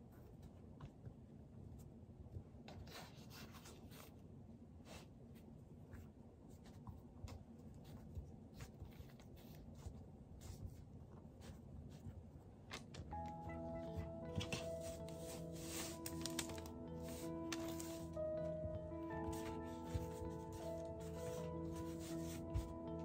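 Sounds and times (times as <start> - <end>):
background music: 13.1 - 23.0.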